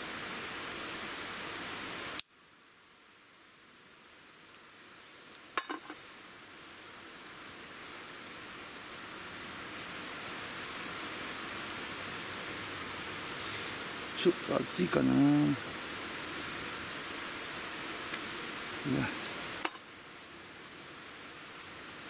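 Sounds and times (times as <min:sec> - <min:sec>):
wood fire hissing and crackling: 0:00.0 - 0:22.0.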